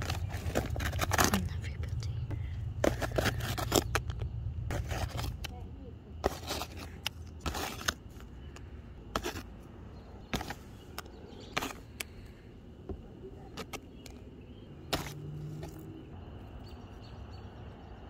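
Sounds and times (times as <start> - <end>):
low outdoor background noise: 0.0 - 18.0
low steady hum: 0.0 - 18.0.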